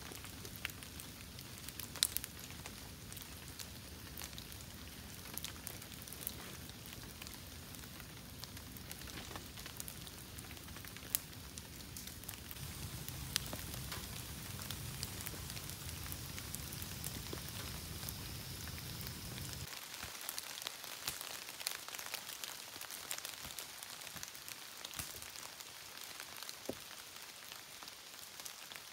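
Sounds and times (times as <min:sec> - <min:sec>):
fire hissing: 0:00.0 - 0:19.8
bonfire crackling and popping: 0:00.0 - 0:28.9
low rumble: 0:12.6 - 0:19.6.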